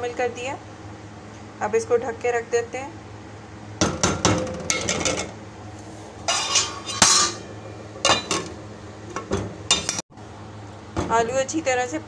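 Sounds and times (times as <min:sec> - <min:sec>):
metal spoon clinking on pot: 0:06.3 - 0:08.5.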